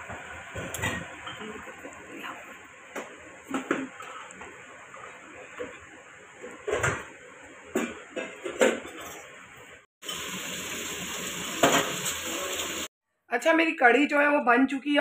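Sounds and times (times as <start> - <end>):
faint frying hiss: 10.0 - 12.9.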